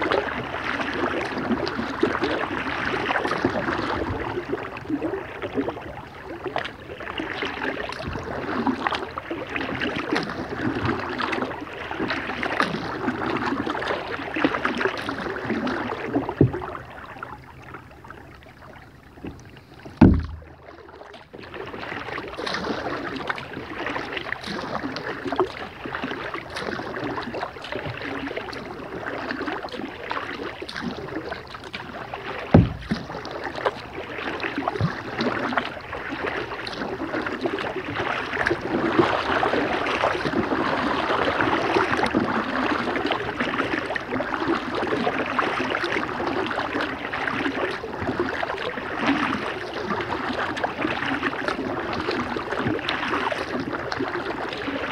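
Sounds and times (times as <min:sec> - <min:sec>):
paddle splashing in water: 0:00.0 - 0:54.9
sharp knock: 0:20.0 - 0:20.5, 0:32.6 - 0:33.0.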